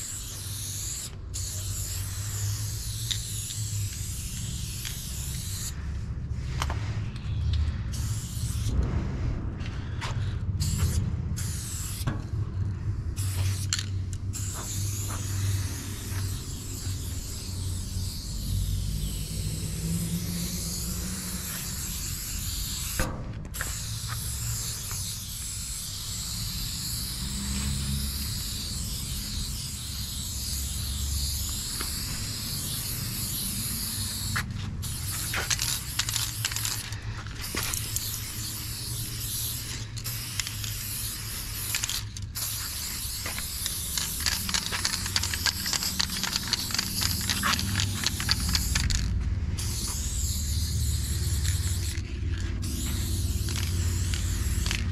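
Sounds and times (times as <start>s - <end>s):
spray can hissing: 0.0s - 5.8s, 7.9s - 8.8s, 9.8s - 12.1s, 13.1s - 54.9s
low rumble: 8.6s - 13.2s.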